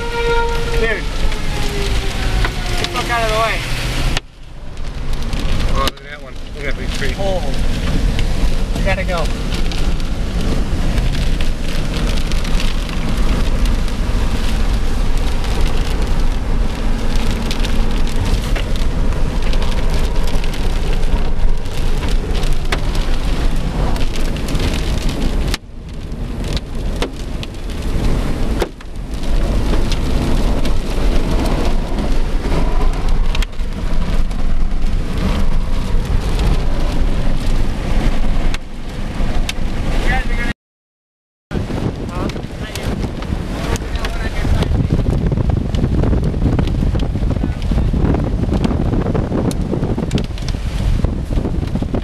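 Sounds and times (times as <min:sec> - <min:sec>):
heavy rain hitting a car: 0:00.0 - 0:40.5, 0:41.5 - 0:52.0.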